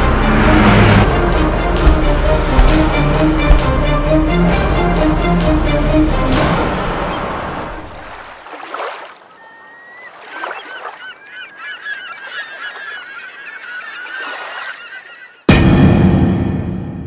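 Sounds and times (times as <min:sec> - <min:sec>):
music: 0:00.0 - 0:08.0, 0:15.5 - 0:17.0
flock of birds calling: 0:09.3 - 0:15.5.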